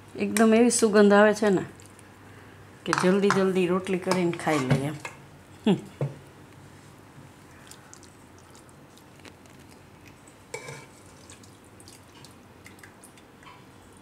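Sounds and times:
ladle scraping in pot: 10.5s - 11.4s.

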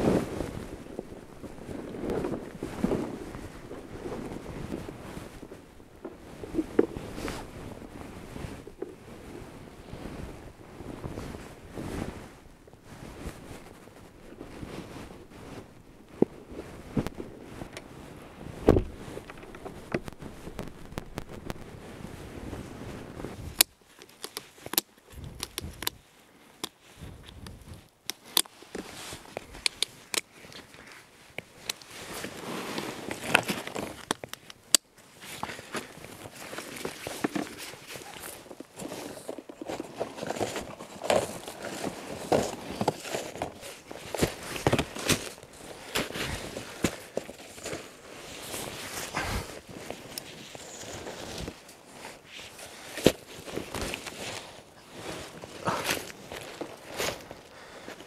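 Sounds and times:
snowshoe bindings clicking: 0.0s - 9.4s, 18.6s - 22.0s, 23.4s - 58.0s
gear rustling and knocking: 0.0s - 9.5s, 18.5s - 21.9s, 35.2s - 58.0s.

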